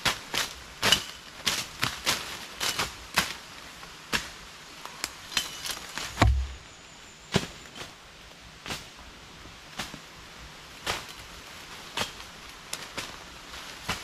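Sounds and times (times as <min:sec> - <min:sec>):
machete chopping undergrowth: 0:00.0 - 0:03.4, 0:04.1 - 0:04.4, 0:05.3 - 0:06.6, 0:11.9 - 0:13.2, 0:13.8 - 0:14.0
heavy low thud: 0:06.2 - 0:06.7.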